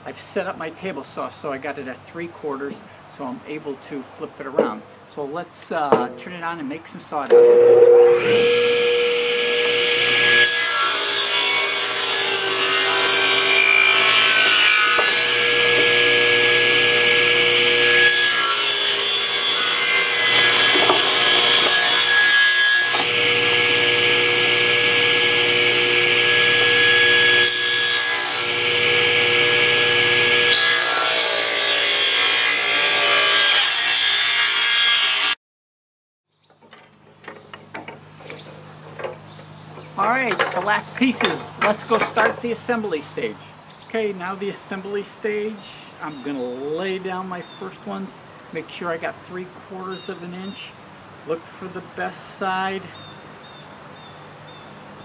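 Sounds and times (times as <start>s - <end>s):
low hum: 7.3s - 10.4s
table saw ripping wood: 8.1s - 35.4s.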